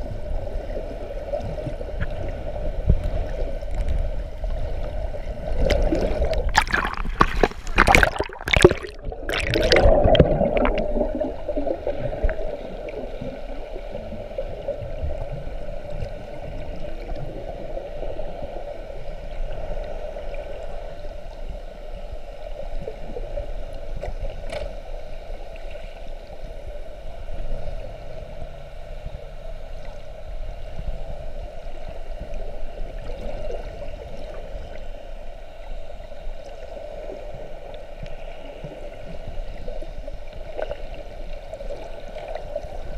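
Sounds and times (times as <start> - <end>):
muffled underwater rushing water: 0.0 - 42.9
splashing and bubbling: 4.7 - 17.4.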